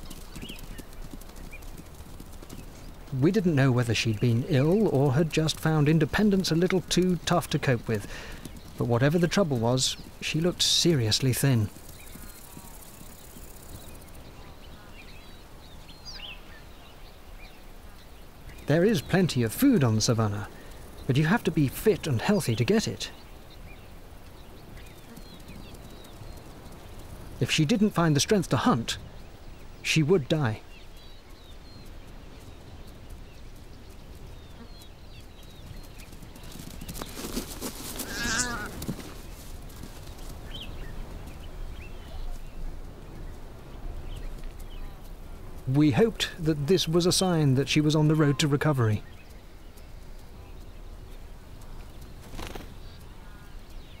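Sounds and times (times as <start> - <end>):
noisy rustling: 0.0 - 54.0
faint bird chirps: 9.6 - 54.0
bleating animal call: 38.0 - 38.8.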